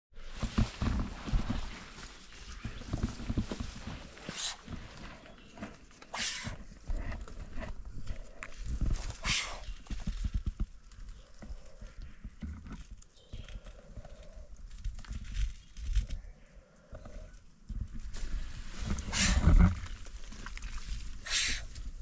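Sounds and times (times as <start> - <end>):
low rustling and knocking: 0.2 - 9.2
snake hissing: 6.1 - 6.6, 9.2 - 9.7, 19.0 - 19.7, 21.2 - 21.8.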